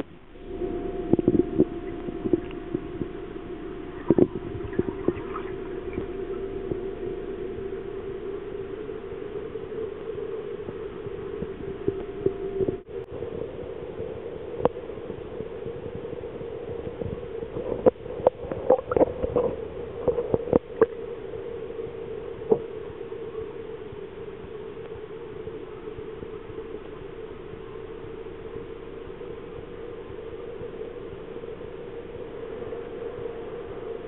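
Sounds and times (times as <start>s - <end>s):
underwater water system hum: 0.0s - 34.0s.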